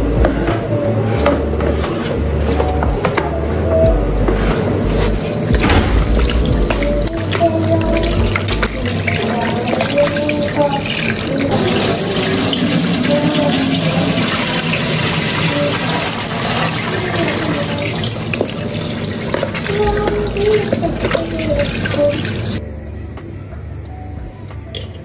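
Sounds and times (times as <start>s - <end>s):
tap water splashing: 5.5s - 22.6s.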